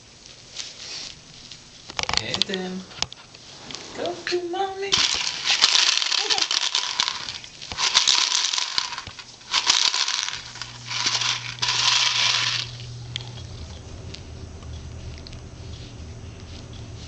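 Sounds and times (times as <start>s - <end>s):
plastic toy rattle shaken: 4.9s - 12.8s.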